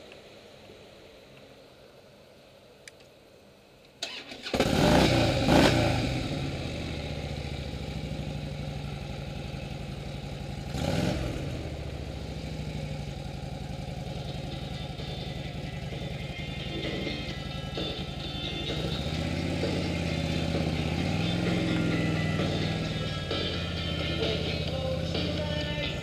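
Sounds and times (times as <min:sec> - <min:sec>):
motorcycle engine starting and idling: 0:03.9 - 0:26.0
engine revving: 0:04.1 - 0:09.3, 0:10.5 - 0:26.0.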